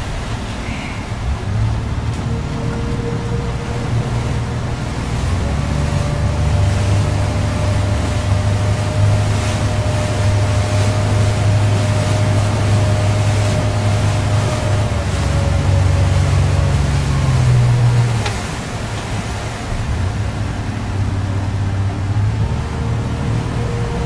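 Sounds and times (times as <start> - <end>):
boat engine running: 0.0 - 24.0
water rushing past hull: 0.0 - 24.0
wind: 0.0 - 24.0.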